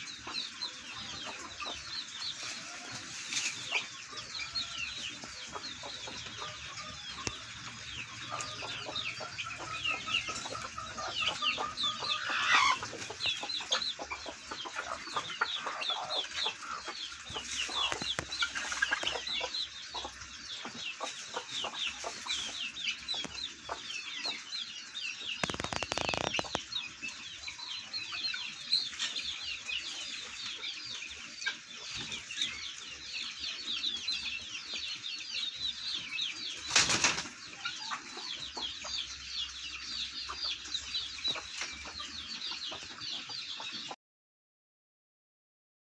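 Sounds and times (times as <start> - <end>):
guineafowl calling: 5.2 - 20.1, 25.4 - 26.6.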